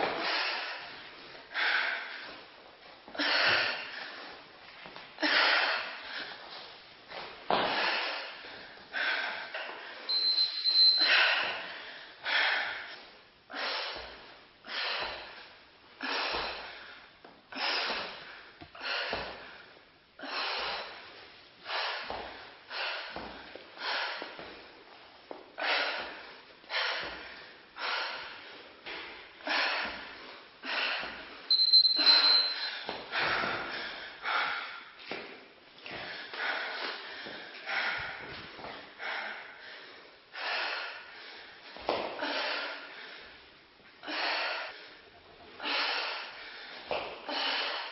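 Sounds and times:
brief high beep: 10.1 - 11.1, 31.5 - 32.7.

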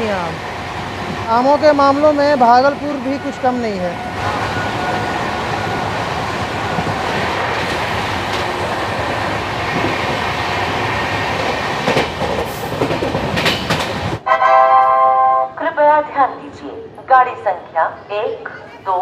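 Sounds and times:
train wheels rumbling on rail: 0.0 - 14.2.

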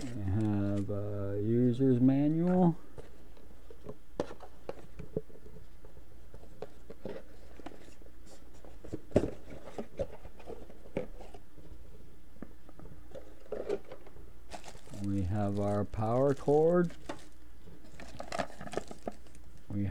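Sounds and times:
hands handling cardboard box: 0.0 - 0.9, 2.4 - 11.8, 13.1 - 19.4.

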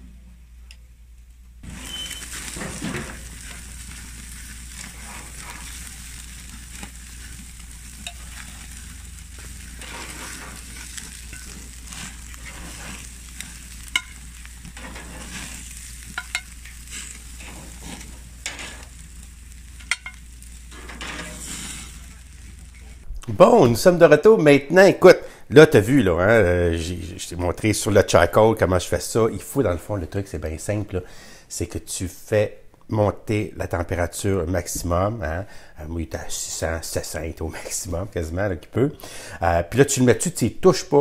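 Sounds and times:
meat sizzling on a grill: 1.6 - 23.6
metal tongs clicking on grates: 7.9 - 8.6, 13.8 - 14.9, 16.0 - 17.1, 19.8 - 20.2.

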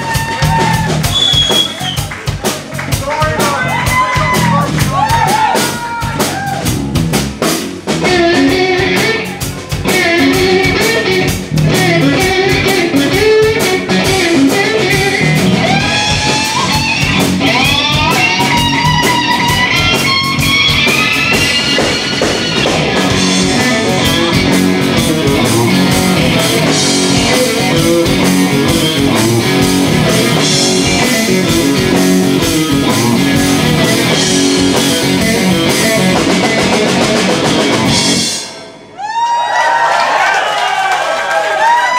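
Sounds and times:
blues-rock band playing: 0.0 - 39.8
electric guitar lead with bends: 6.4 - 39.0.

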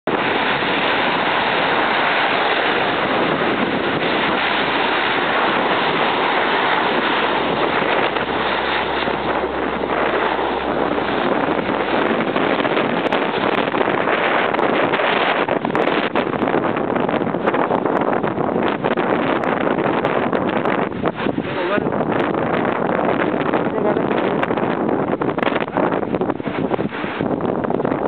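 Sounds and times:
turboprop engines roaring: 0.0 - 18.9
low propeller drone: 0.0 - 28.0
wind buffeting microphone: 0.0 - 28.0.

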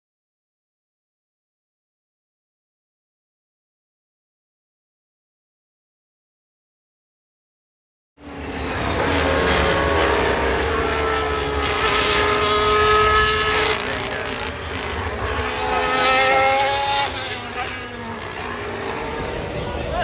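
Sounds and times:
racing cars passing: 8.2 - 20.0.

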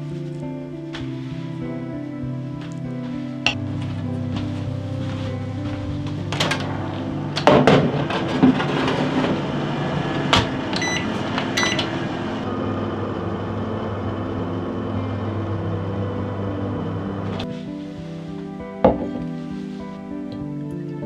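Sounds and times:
oven door opening and shutting: 3.5 - 17.4
short electronic beeps: 10.8 - 11.8.

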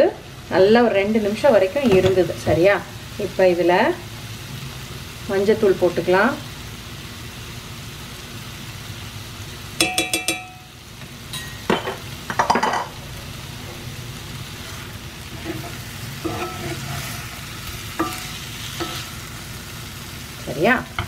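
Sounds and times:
chicken and onions sizzling: 0.0 - 21.0
metal spoon clinking on pan: 9.8 - 10.7, 11.3 - 12.9, 18.0 - 19.1
spoon scraping pan: 14.5 - 19.5.

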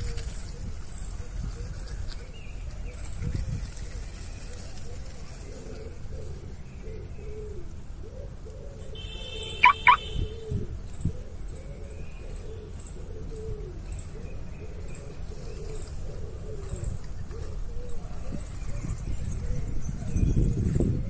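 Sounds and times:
pigeons cooing: 0.0 - 21.0
high bird calls: 8.8 - 10.6.

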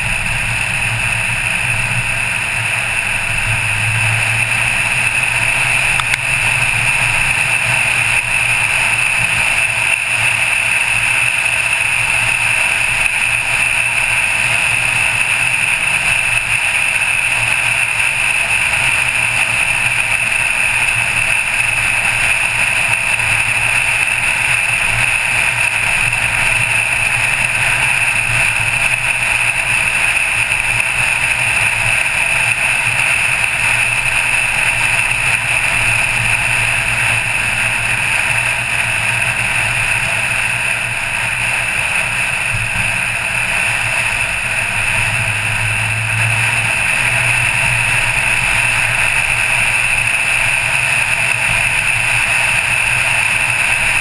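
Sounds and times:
low engine drone: 0.0 - 54.0
wind and road noise: 0.0 - 54.0.

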